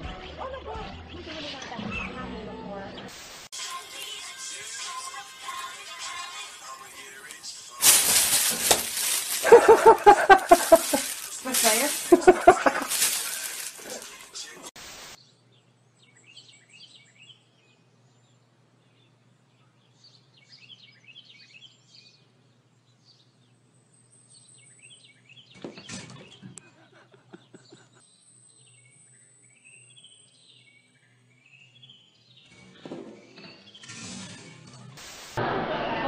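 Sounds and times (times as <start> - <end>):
small birds chirping: 0.0 - 3.1, 7.0 - 33.9
rustling noise: 7.8 - 15.2.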